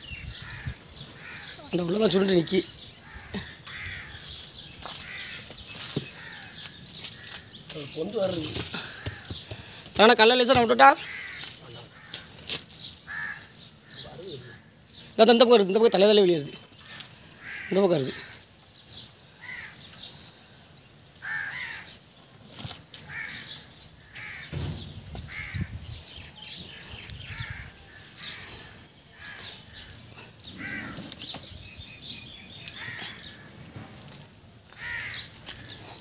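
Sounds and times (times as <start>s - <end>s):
crows cawing: 0.4s - 5.5s, 6.1s - 7.4s, 8.8s - 9.7s, 10.8s - 12.4s, 13.1s - 14.7s, 16.8s - 18.5s, 19.4s - 19.9s, 21.2s - 22.0s, 23.0s - 24.6s, 25.3s - 25.7s, 27.2s - 31.2s, 32.7s - 33.5s, 34.7s - 35.7s.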